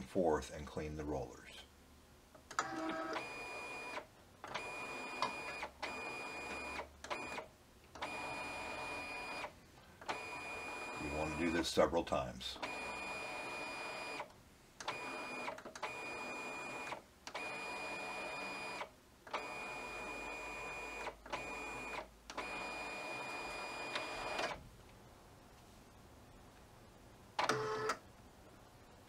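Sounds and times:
printer motor and rollers whirring: 2.6s - 7.4s.

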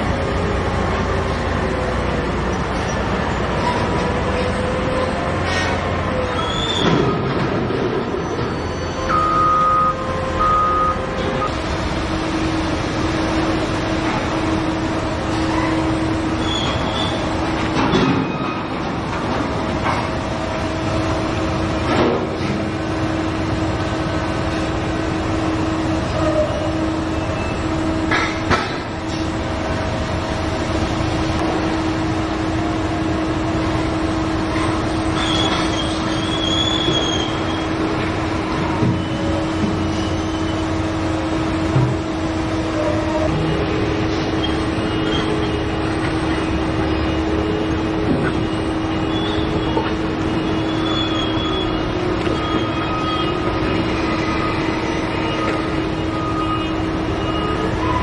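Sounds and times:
short metallic squeals: 3.6s - 7.3s, 8.1s - 9.6s, 15.4s - 17.3s, 34.6s - 37.7s, 42.7s - 58.0s
machinery drone with whining tone: 8.2s - 58.0s.

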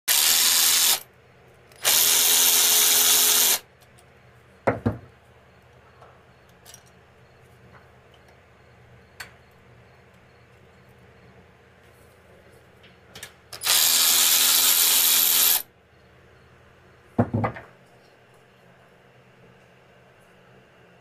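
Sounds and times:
electric ratchet spinning bolt: 0.1s - 1.0s, 1.8s - 3.6s, 13.6s - 15.6s.

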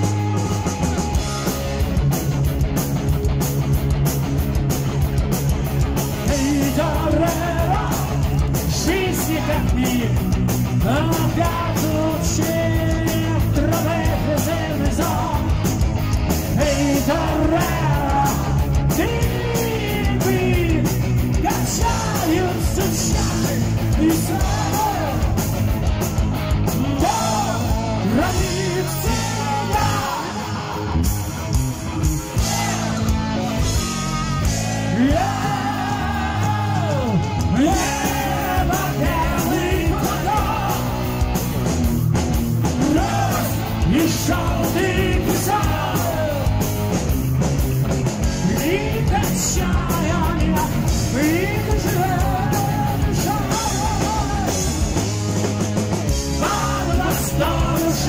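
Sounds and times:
bass guitar: 0.0s - 58.0s
distorted electric guitar: 0.0s - 58.0s
drums: 0.0s - 58.0s
man singing: 6.2s - 15.7s, 16.5s - 25.4s, 26.8s - 30.8s, 34.8s - 41.0s, 42.8s - 46.6s, 48.3s - 54.8s, 56.3s - 58.0s.

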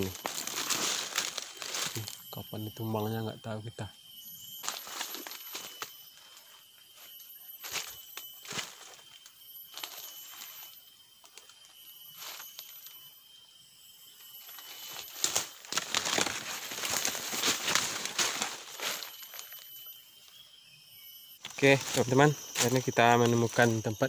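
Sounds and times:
footsteps crunching through leaves: 0.0s - 2.3s, 4.6s - 9.0s, 14.4s - 19.7s, 21.5s - 24.0s.

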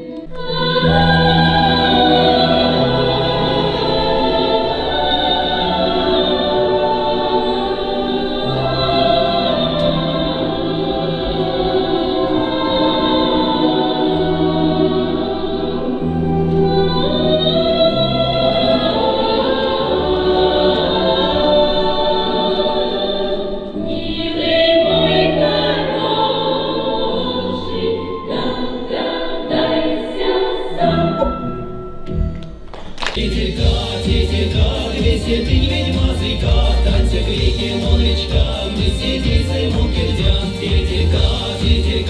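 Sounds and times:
choir singing slowly: 0.0s - 32.1s, 32.8s - 42.0s
loud noisy musical backing: 32.0s - 42.0s.

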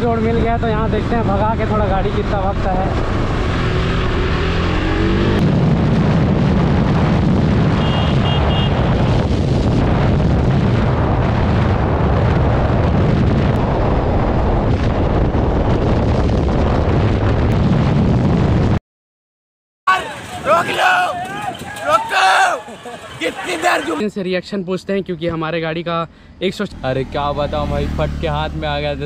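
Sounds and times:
motorcycle engine accelerating: 0.0s - 18.8s, 26.7s - 29.0s
wind buffeting microphone: 0.0s - 18.8s.

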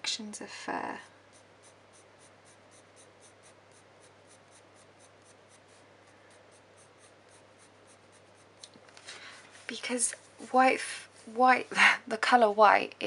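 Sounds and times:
low steady hum: 0.0s - 13.0s
pencil scratching on paper: 0.6s - 8.6s.

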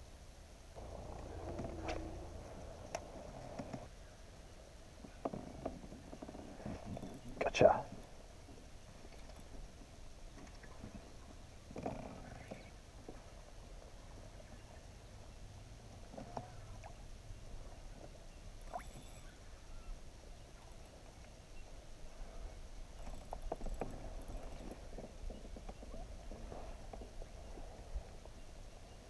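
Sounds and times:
steady low rumble: 0.7s - 3.9s.

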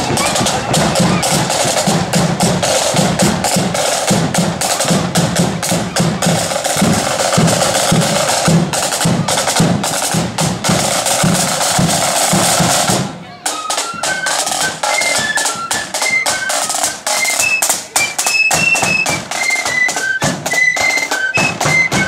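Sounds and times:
bass drum beats: 0.0s - 13.0s
snare drum rolls: 0.0s - 22.0s.

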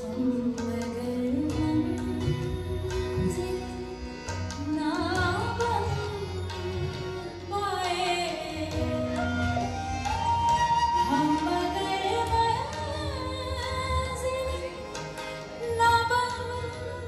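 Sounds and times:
woman singing ornamented vocals: 4.6s - 15.0s.

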